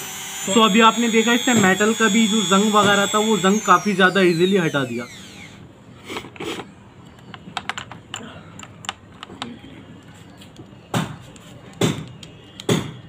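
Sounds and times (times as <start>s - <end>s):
small parts clicking and rattling: 7.1s - 10.7s.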